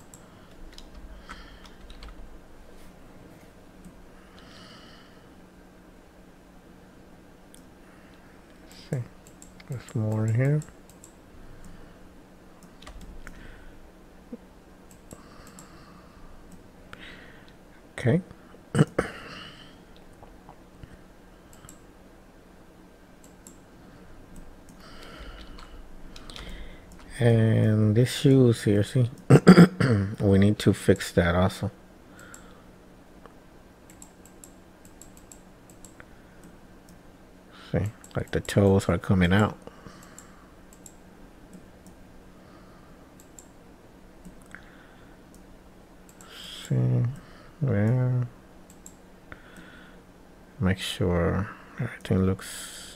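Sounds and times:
computer mouse clicks: 0.0s - 2.2s, 9.2s - 11.8s, 12.6s - 13.4s, 14.9s - 15.7s, 21.5s - 21.8s, 23.2s - 23.6s, 24.3s - 27.1s, 32.2s - 32.5s, 33.9s - 37.0s, 40.0s - 42.0s, 43.2s - 43.6s, 44.2s - 44.6s, 48.7s - 49.7s
low steady hum: 0.0s - 52.9s
breath: 0.2s - 1.8s, 4.2s - 5.4s, 13.3s - 13.8s, 15.1s - 17.6s, 24.8s - 26.9s, 32.1s - 32.7s, 39.7s - 40.6s, 44.5s - 45.2s, 49.3s - 50.0s
computer mouse and keyboard clicks: 12.6s - 13.4s.

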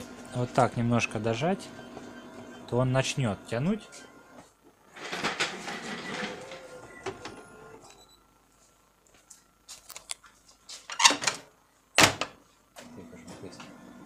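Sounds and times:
faint machine hum: 0.0s - 14.0s
copier cover clunking: 4.9s - 7.5s, 12.0s - 12.4s.

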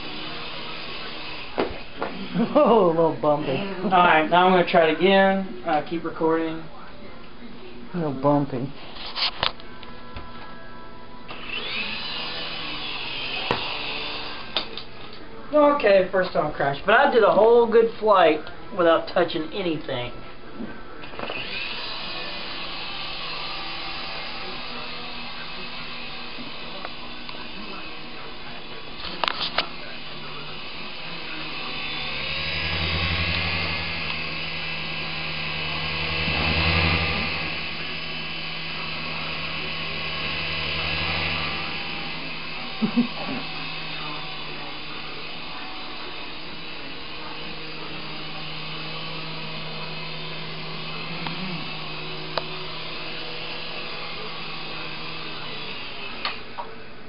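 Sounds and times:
toy helicopter whirring: 0.0s - 4.5s, 11.3s - 14.8s, 21.1s - 56.6s.

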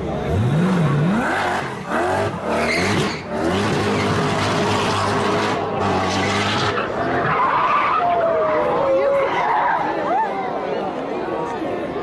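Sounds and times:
car engine revving hard: 0.1s - 6.8s
tyre squeal: 2.4s - 4.3s.

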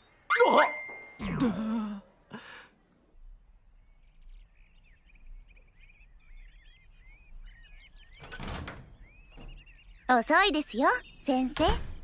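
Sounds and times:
small birds chirping: 2.9s - 12.0s.

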